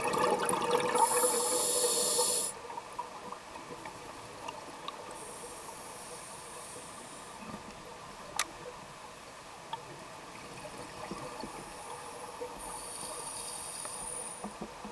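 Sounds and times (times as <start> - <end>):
scuba bubbles hissing: 0.2 - 2.6
underwater low hiss: 0.8 - 2.8, 4.4 - 7.7, 10.8 - 14.9
faint ticks: 12.6 - 14.9.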